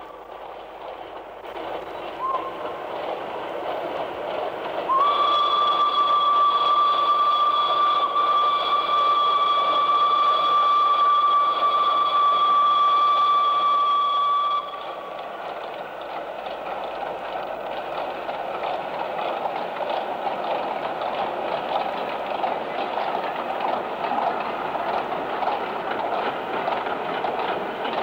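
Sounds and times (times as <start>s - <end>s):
train running noise: 0.0s - 28.0s
steam locomotive whistle: 2.2s - 2.6s, 4.8s - 15.2s.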